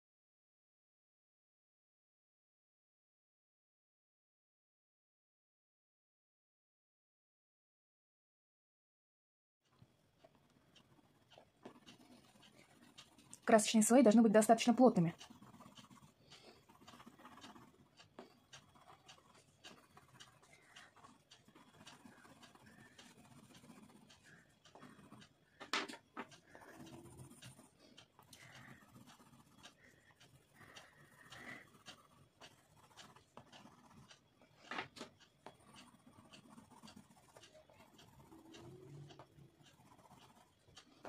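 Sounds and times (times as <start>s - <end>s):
crayon scratching on paper: 10.2s - 41.0s.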